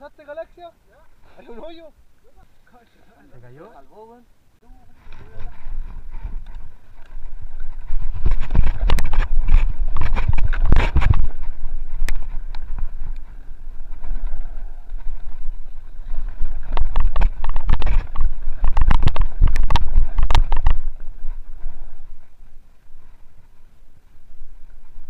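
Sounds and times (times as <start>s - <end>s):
wind buffeting microphone: 5.0s - 25.0s
bike rattling and knocking: 5.1s - 22.3s.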